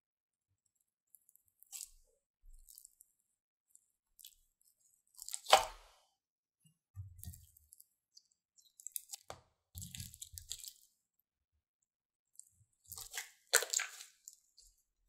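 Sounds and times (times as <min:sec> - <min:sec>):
slime squishing and popping: 0:05.2 - 0:05.9, 0:12.9 - 0:14.4
slime crackling: 0:13.0 - 0:14.4.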